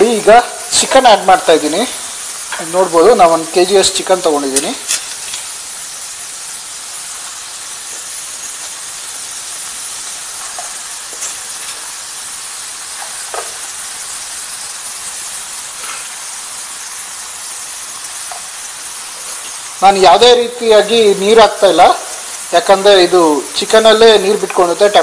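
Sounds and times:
chicken sizzling in frying pan: 0:00.0 - 0:25.0
faint crackles: 0:04.5 - 0:19.8.

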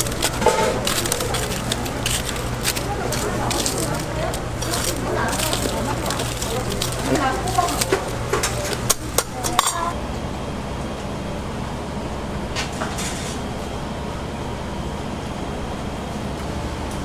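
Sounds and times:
kitchen utensils clinking: 0:00.0 - 0:10.0
steady background hum: 0:00.0 - 0:17.0.

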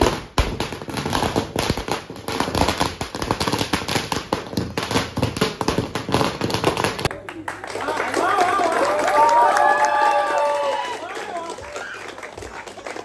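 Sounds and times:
firecrackers banging: 0:00.0 - 0:07.1.

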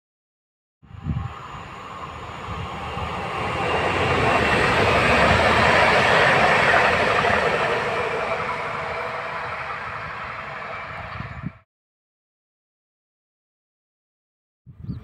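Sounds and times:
train passing at speed: 0:00.8 - 0:11.7.

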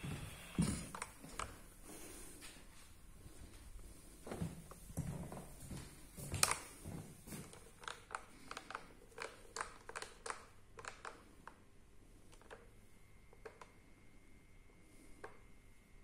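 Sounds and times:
plastic clicks and crinkles: 0:00.8 - 0:01.6, 0:06.3 - 0:11.6, 0:12.3 - 0:13.8.

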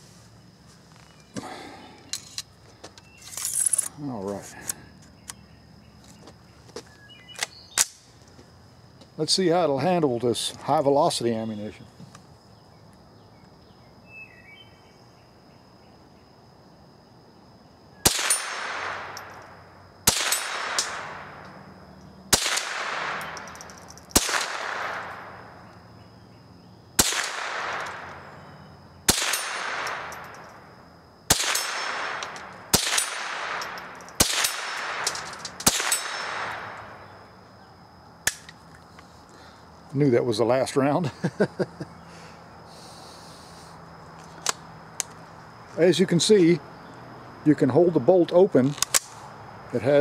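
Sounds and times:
rifle shots with echo: 0:18.0 - 0:19.4, 0:20.0 - 0:21.4, 0:22.3 - 0:25.4, 0:27.0 - 0:28.2, 0:29.1 - 0:30.4, 0:31.3 - 0:37.0.

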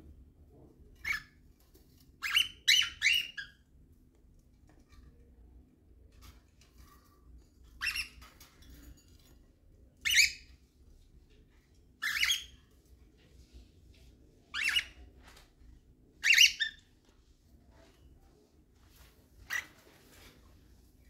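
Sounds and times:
cockatiel high calls: 0:01.0 - 0:01.4, 0:02.2 - 0:03.6, 0:10.1 - 0:10.5, 0:12.0 - 0:12.6, 0:14.5 - 0:15.0, 0:16.2 - 0:16.9, 0:19.4 - 0:19.9.

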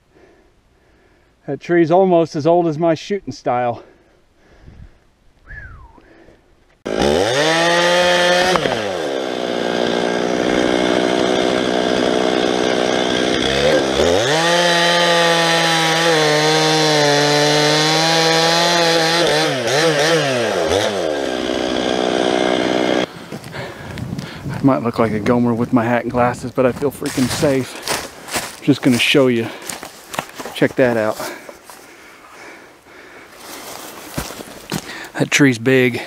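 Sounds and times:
chainsaw cutting wood: 0:06.8 - 0:23.6, 0:27.1 - 0:28.6.

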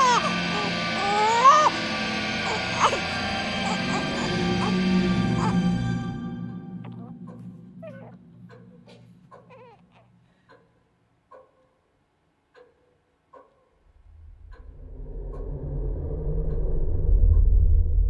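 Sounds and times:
low rumbling drone: 0:00.0 - 0:09.4, 0:13.9 - 0:18.0.

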